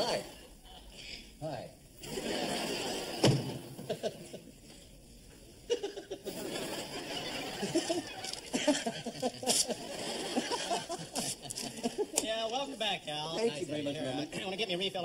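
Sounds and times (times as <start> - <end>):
audience laughing: 2.0 - 4.8, 5.6 - 12.2.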